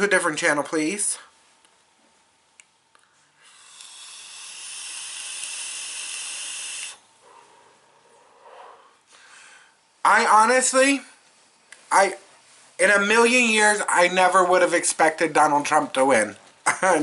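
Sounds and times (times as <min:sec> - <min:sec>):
e-cigarette vapour hiss: 0:03.4 - 0:07.0
breathy exhale: 0:07.2 - 0:09.8.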